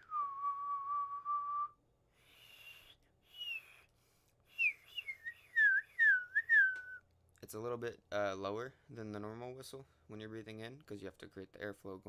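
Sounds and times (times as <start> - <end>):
person whistling: 0.0 - 3.9, 4.5 - 7.0.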